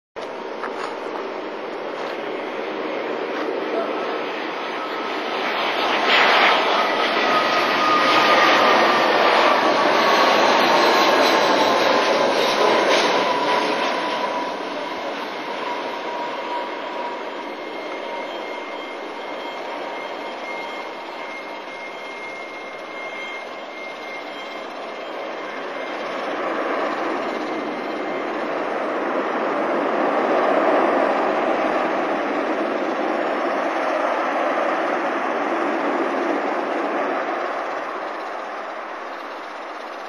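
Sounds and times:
loud jet whine overhead: 0:00.2 - 0:40.0.

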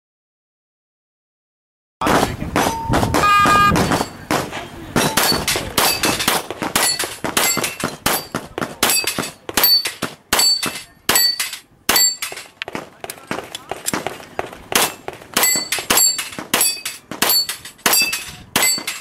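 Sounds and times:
pistol shots: 0:02.0 - 0:19.0
steel plates pinging: 0:05.0 - 0:12.6, 0:14.8 - 0:19.0.

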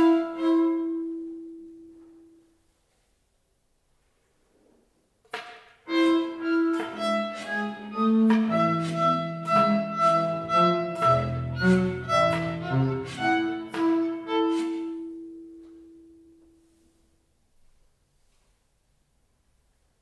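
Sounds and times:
chamber ensemble playing: 0:05.9 - 0:15.6.

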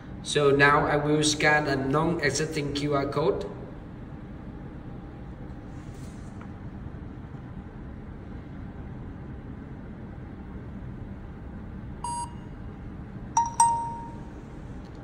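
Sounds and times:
phone app beeps: 0:12.1 - 0:12.4, 0:13.4 - 0:14.3.

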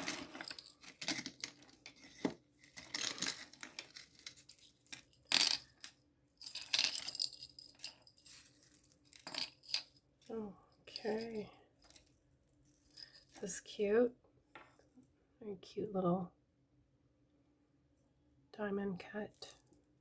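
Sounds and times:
metal chains clinking: 0:00.0 - 0:10.0, 0:10.9 - 0:12.1, 0:12.7 - 0:13.4.

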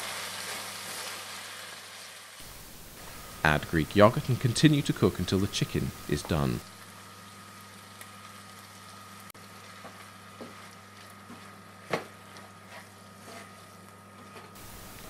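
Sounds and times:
food sizzling in a frying pan: 0:00.0 - 0:13.4, 0:14.6 - 0:15.0
steady low hum: 0:02.4 - 0:07.4, 0:14.6 - 0:15.0
spatula scraping a pan: 0:12.2 - 0:14.6.

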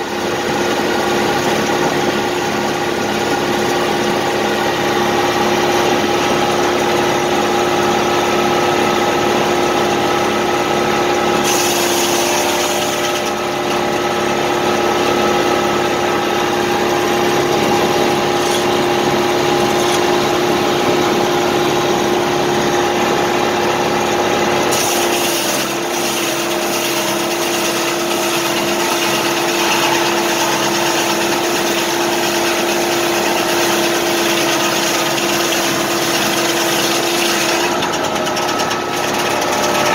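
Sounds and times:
tractor engine running: 0:00.0 - 0:11.4, 0:13.3 - 0:24.7, 0:37.6 - 0:39.9
saw blade spinning: 0:11.4 - 0:21.3, 0:24.7 - 0:39.9.

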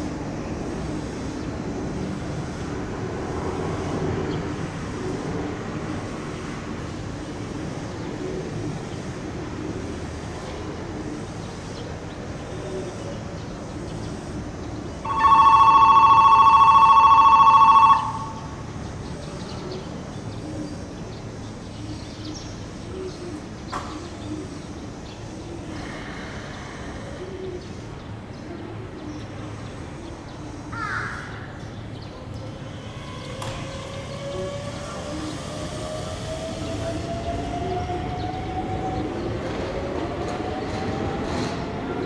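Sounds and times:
station ambience: 0:00.0 - 0:30.8, 0:31.4 - 0:42.0
electric bell ringing: 0:15.1 - 0:18.6.

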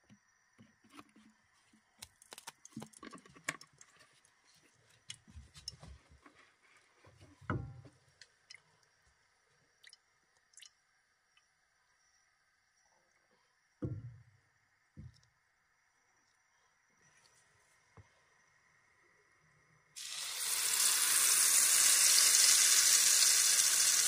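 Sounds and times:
oil pouring into pan: 0:20.0 - 0:24.0.

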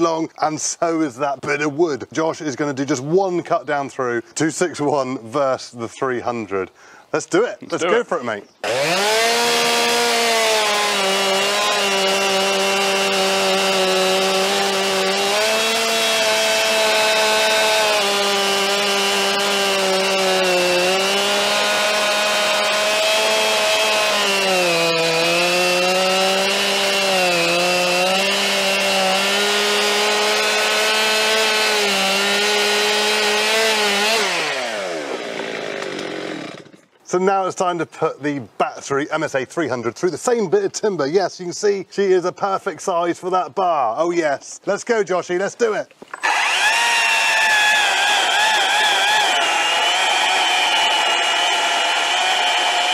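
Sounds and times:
chainsaw cutting log: 0:08.6 - 0:37.0, 0:45.9 - 0:52.9.

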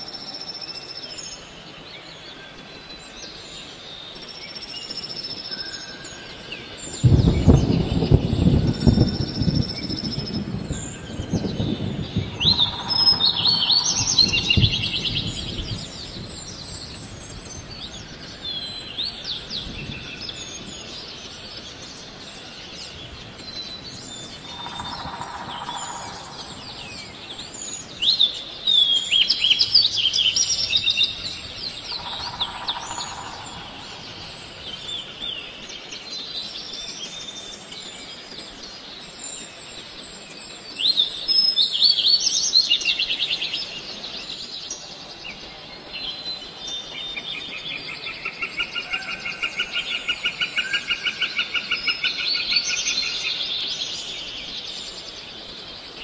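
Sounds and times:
birds chirping and twittering: 0:00.0 - 0:56.0
low outdoor background: 0:00.0 - 0:56.0
low rumble: 0:07.0 - 0:18.8.

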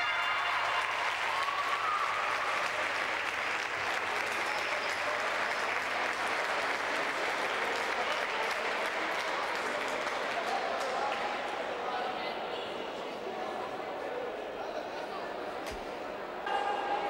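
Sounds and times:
crowd clapping: 0:00.0 - 0:11.6.

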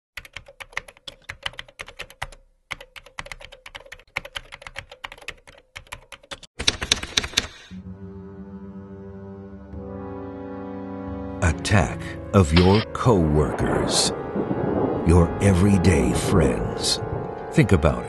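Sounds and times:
rapid keyboard typing: 0:00.2 - 0:07.7.

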